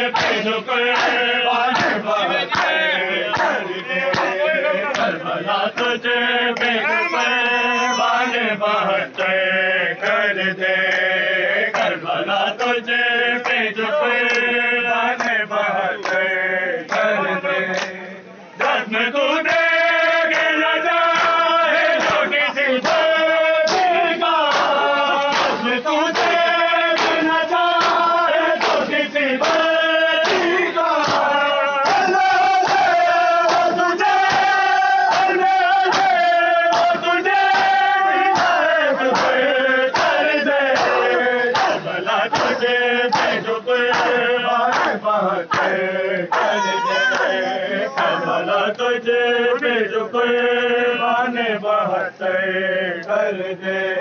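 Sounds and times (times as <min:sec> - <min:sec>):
men chanting in unison: 0:00.0 - 0:54.0
hand slaps on chest: 0:01.0 - 0:02.0, 0:24.5 - 0:25.6, 0:27.0 - 0:27.2, 0:38.4 - 0:39.4, 0:42.4 - 0:45.7.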